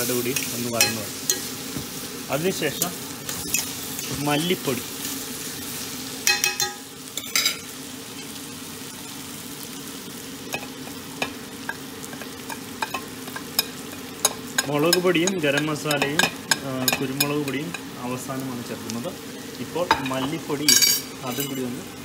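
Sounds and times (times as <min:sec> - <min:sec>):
onions sizzling in oil: 0:00.0 - 0:22.0
metal spoon clinking: 0:06.2 - 0:07.6, 0:19.9 - 0:21.7.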